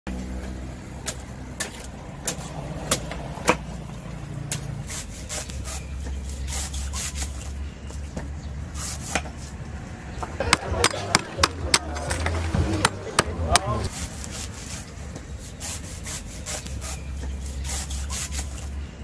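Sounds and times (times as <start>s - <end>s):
cleaver chopping coconut husk: 1.0s - 3.7s, 4.5s - 7.4s, 10.3s - 18.6s
low engine rumble: 5.5s - 15.4s.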